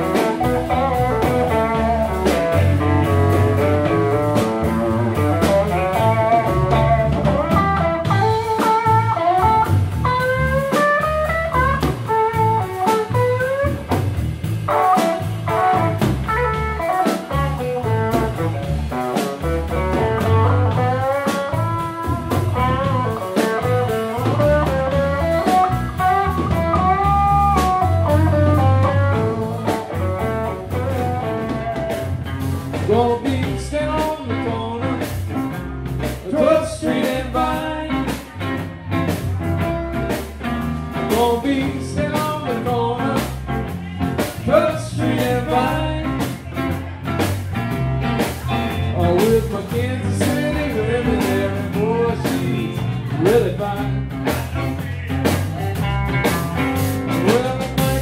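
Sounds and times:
bending electric guitar lead: 0.0 - 58.0
live blues band playing: 0.0 - 58.0.

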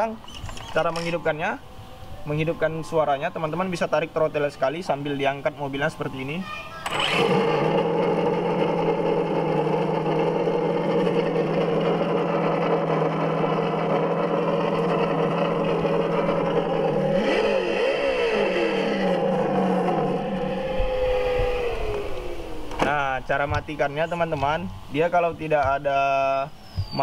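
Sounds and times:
simulated engine from speaker: 6.8 - 25.9.

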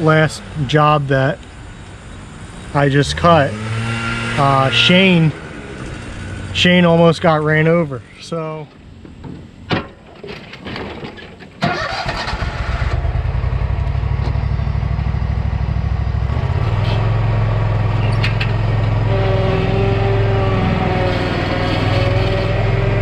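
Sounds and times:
lawn mower engine running: 11.6 - 23.0
high steady whine: 12.5 - 19.3.

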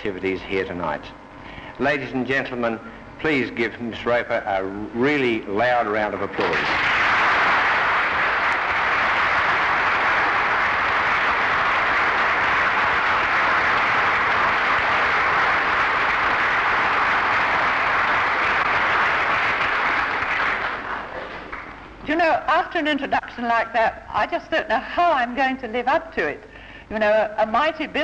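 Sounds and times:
audience applauding: 6.4 - 21.9.

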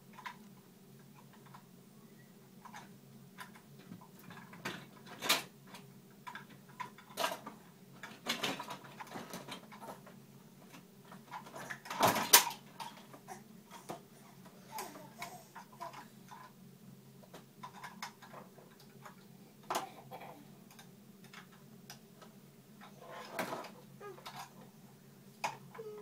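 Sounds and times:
plastic toys clattering: 6.2 - 10.1, 10.7 - 13.9, 17.6 - 19.9, 22.8 - 24.6.

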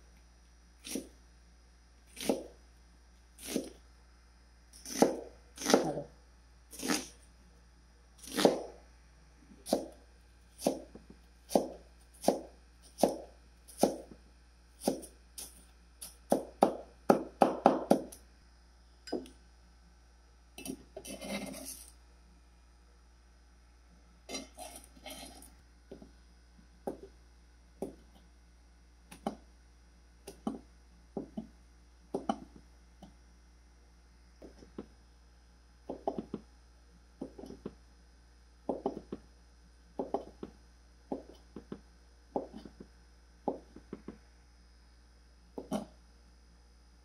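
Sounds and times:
knife chopping on plastic board: 4.8 - 6.0, 8.2 - 8.8, 10.6 - 14.2, 14.8 - 18.2, 27.8 - 28.1, 29.1 - 29.4, 30.3 - 30.6, 32.1 - 32.6, 35.9 - 36.5, 37.2 - 37.8, 38.7 - 39.3, 40.0 - 44.2, 45.6 - 45.9.

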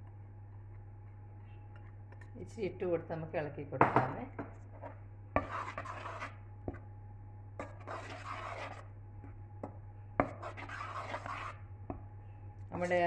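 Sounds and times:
spoon scraping in pot: 4.7 - 6.5, 7.6 - 8.9, 10.2 - 11.7.

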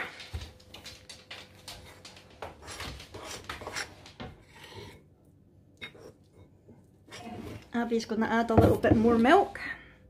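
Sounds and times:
metal spoon scraping ceramic bowl: 3.2 - 5.0, 5.8 - 6.5.

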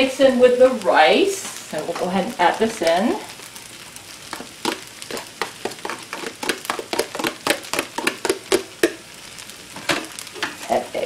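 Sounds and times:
rice frying in a skillet: 0.0 - 11.0
utensil scraping and tapping: 4.3 - 9.0.

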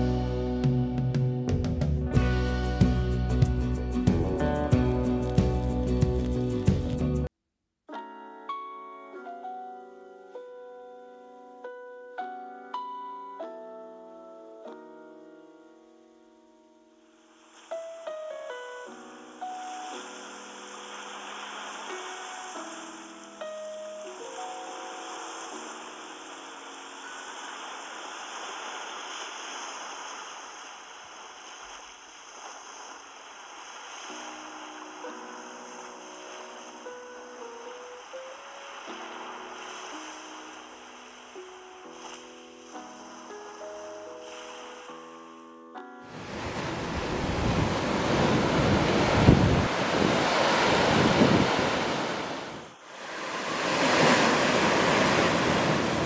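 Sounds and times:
soft background music: 0.0 - 7.3, 7.9 - 28.8, 33.9 - 49.4
sea waves washing on beach: 17.2 - 45.2, 46.1 - 56.0
surf breaking on shore: 18.8 - 23.4, 24.2 - 44.8, 46.1 - 56.0
wind buffeting microphone: 46.2 - 52.7.

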